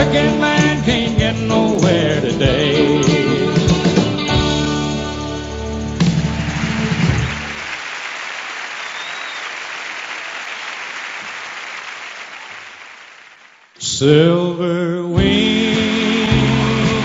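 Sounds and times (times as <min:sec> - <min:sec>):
country band playing slow song: 0:00.0 - 0:07.6, 0:13.8 - 0:17.0
audience applause: 0:06.1 - 0:13.8.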